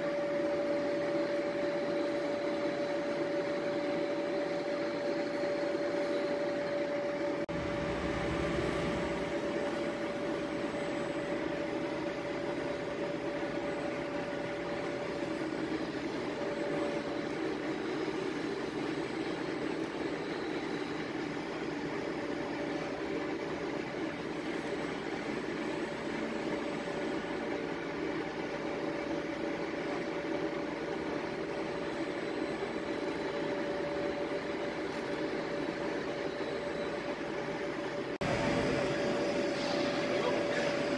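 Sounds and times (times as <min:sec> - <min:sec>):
machine whining: 0:00.0 - 0:40.9.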